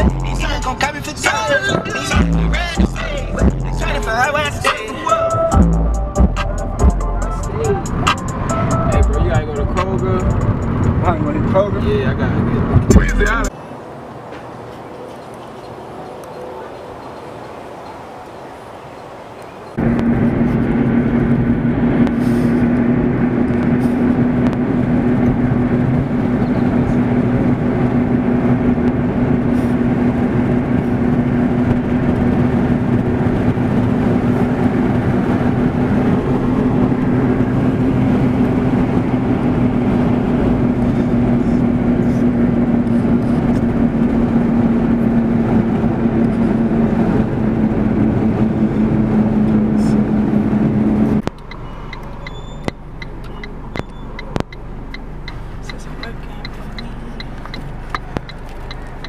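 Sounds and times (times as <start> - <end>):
car engine drone: 0.0 - 59.0
road noise: 0.0 - 59.0.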